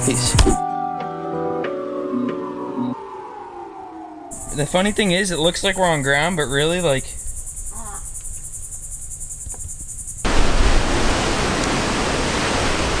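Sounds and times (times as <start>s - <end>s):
insect chorus shrilling: 4.3s - 10.3s.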